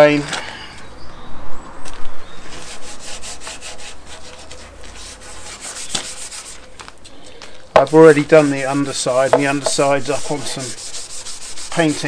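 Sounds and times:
abrasive pad scratching on wood: 2.5s - 6.6s, 7.8s - 12.0s.

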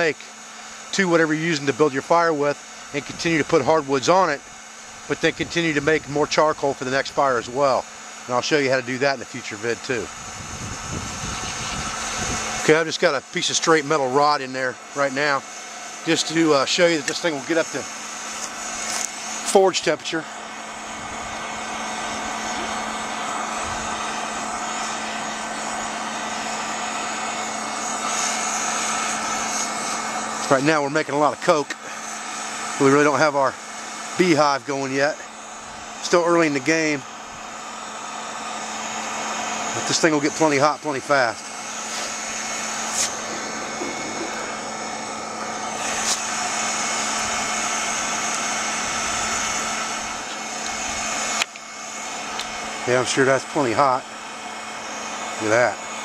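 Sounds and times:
blower fan humming: 0.0s - 56.0s
air rushing through pipe: 10.0s - 12.8s, 18.3s - 30.6s, 39.7s - 51.3s.

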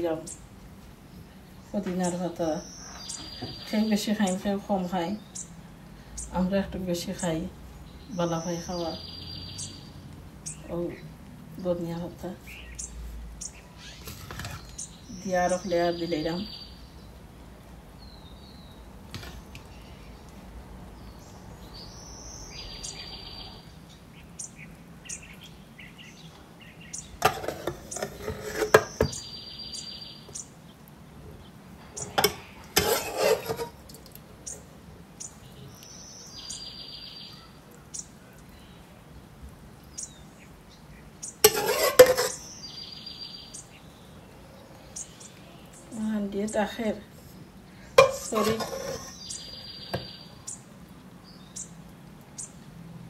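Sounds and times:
utensils clattering on cooking pot: 27.2s - 28.9s, 32.0s - 33.8s, 41.4s - 42.4s, 48.0s - 49.2s
bird trill: 48.9s - 50.6s.

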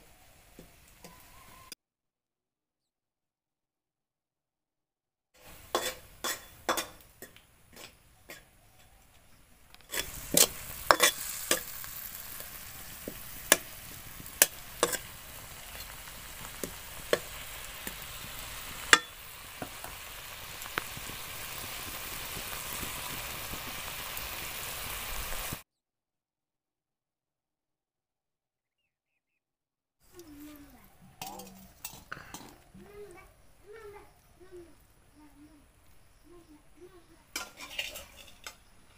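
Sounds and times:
meat sizzling in a wok: 0.0s - 1.7s, 5.4s - 8.5s, 9.9s - 25.6s
metal spatula scraping: 5.5s - 9.0s, 9.9s - 18.2s, 37.4s - 38.7s
spatula clinking against pan: 18.9s - 19.2s.

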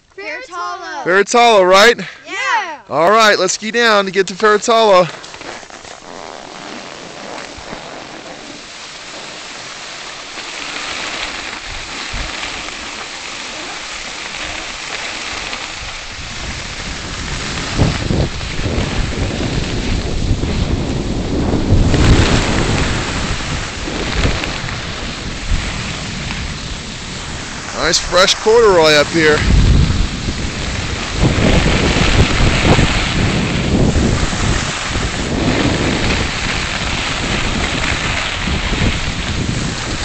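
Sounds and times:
skis scraping over snow: 0.1s - 40.0s
wind buffeting microphone: 10.6s - 40.0s.

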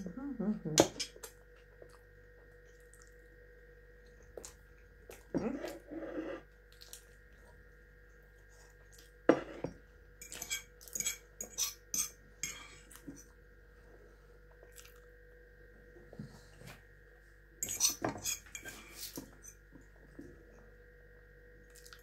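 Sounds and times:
fork clinking and scraping on pan: 10.2s - 12.6s, 17.6s - 18.8s.

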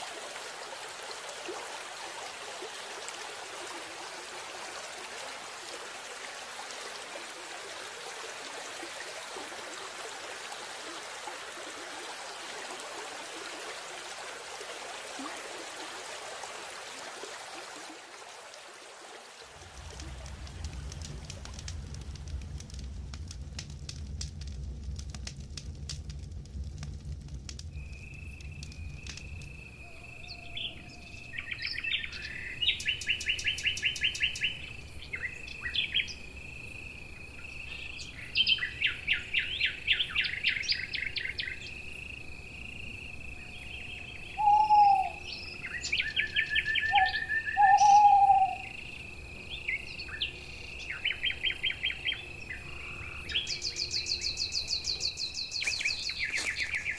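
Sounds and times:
campfire crackling: 0.0s - 44.4s, 45.0s - 56.9s
low rumble: 19.6s - 29.5s
lower loud bird calls: 27.8s - 36.2s, 43.4s - 48.9s, 49.5s - 56.9s
birds trilling: 43.6s - 48.7s, 49.6s - 56.9s.

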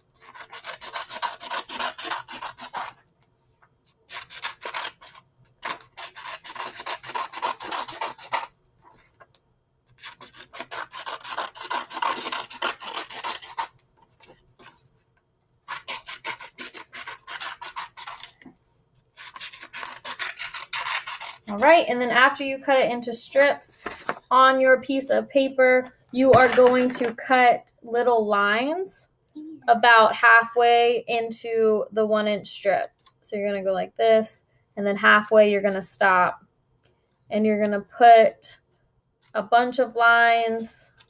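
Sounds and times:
scissors cutting paper: 0.2s - 3.0s, 4.1s - 8.5s, 10.0s - 14.8s, 15.7s - 18.4s, 19.2s - 21.9s.

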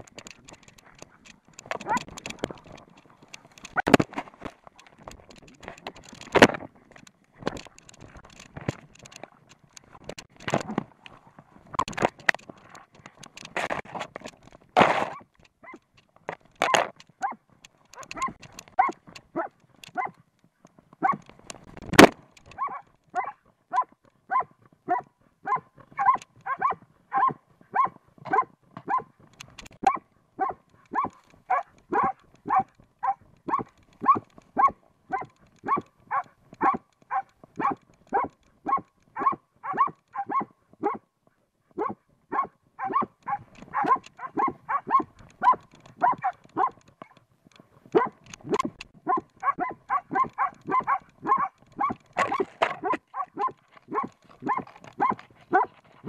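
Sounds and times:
dog barking: 17.2s - 17.4s, 18.0s - 20.2s, 21.0s - 21.2s, 22.6s - 29.1s, 29.8s - 41.0s, 41.8s - 46.8s, 47.9s - 55.8s.

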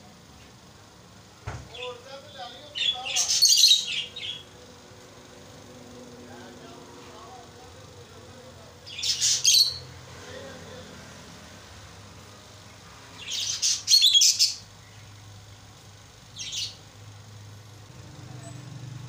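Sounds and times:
lovebirds chirping: 1.2s - 4.8s, 8.7s - 10.4s, 12.2s - 17.3s.

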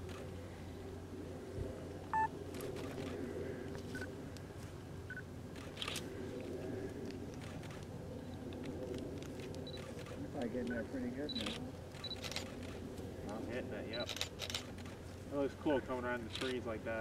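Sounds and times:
steady low hum: 0.0s - 17.0s
camera beeps: 2.1s - 3.1s, 9.6s - 10.0s, 10.6s - 12.5s
camera shutter clicks: 5.6s - 6.1s, 11.4s - 12.8s.

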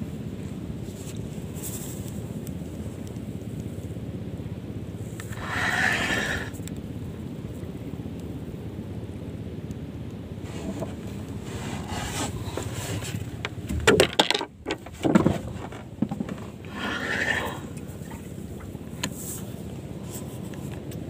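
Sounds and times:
loud scrapes and knocks: 5.2s - 6.5s, 10.5s - 17.6s
glove scraping against microphone: 5.2s - 6.6s, 10.4s - 13.4s, 14.9s - 18.2s.

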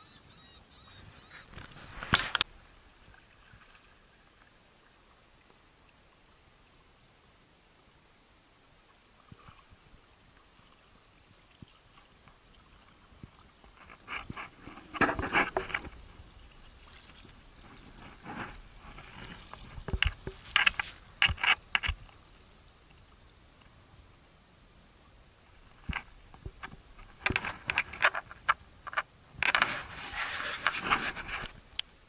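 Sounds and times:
paddle strokes splashing: 1.0s - 5.6s, 9.1s - 22.6s
small waves slapping hull: 1.0s - 6.1s, 8.8s - 23.8s.

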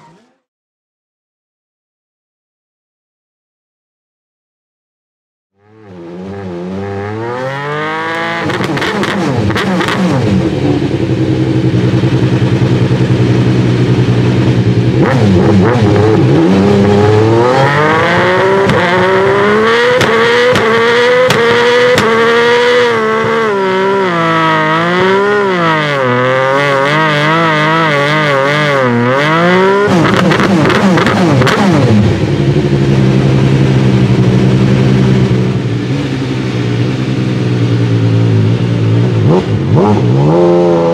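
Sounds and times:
race car engine revving: 5.6s - 40.9s
race car engine idling: 10.7s - 15.0s.

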